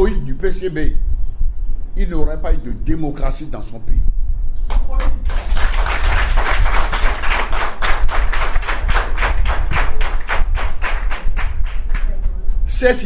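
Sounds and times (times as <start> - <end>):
audience clapping rhythmically: 4.7 - 12.3.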